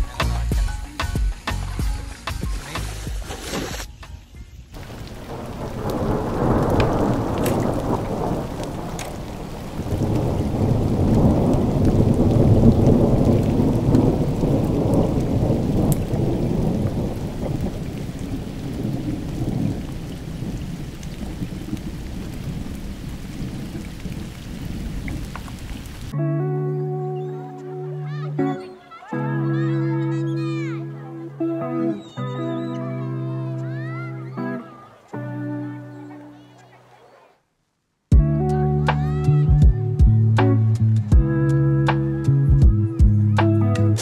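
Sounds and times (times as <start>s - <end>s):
rain: 0.0s - 3.9s, 4.7s - 26.2s, 27.6s - 44.0s
thunder rumbling: 4.8s - 26.2s.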